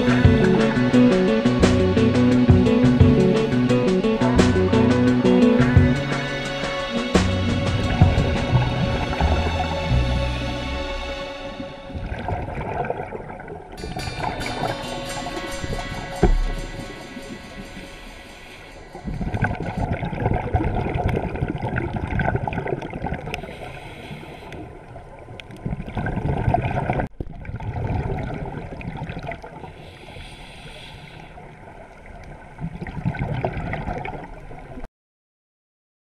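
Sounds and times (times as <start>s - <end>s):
underwater bubbles gurgling: 7.8s - 9.8s, 11.6s - 14.7s, 18.9s - 30.0s, 31.3s - 34.8s.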